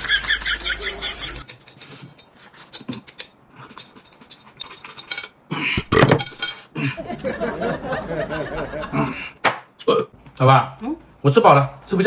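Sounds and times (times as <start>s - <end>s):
chopsticks clinking on porcelain bowl: 0.9s - 5.4s.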